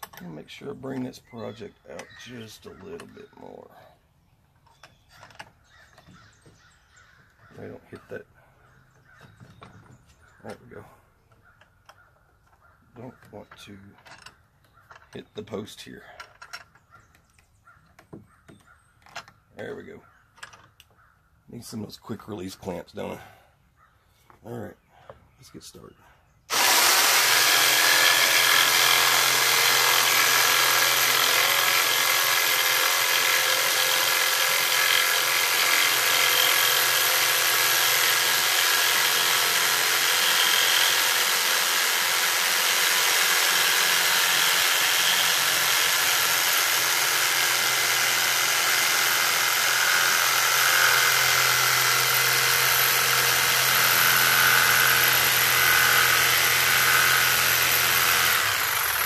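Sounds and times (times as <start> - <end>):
jigsaw cutting wood: 26.5 - 59.0.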